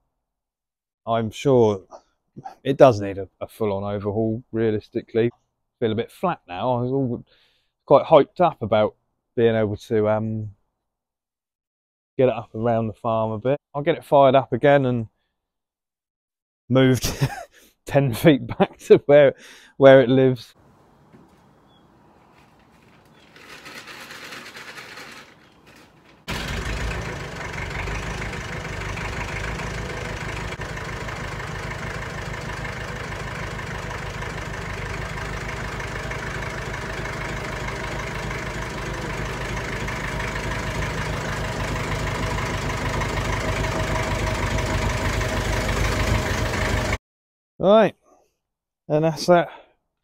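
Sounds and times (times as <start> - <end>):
tractor engine running: 20.6 - 47.0
diesel engine cranking and starting: 22.2 - 47.0.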